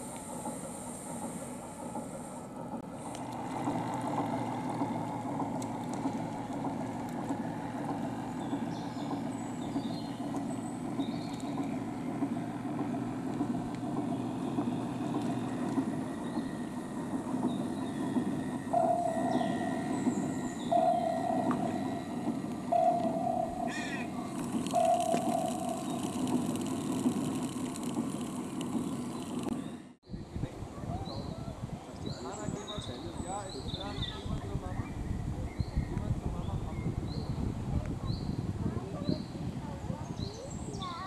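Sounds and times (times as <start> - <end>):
model boat motor hum: 0.0 - 30.0
steady single tone: 17.6 - 27.5.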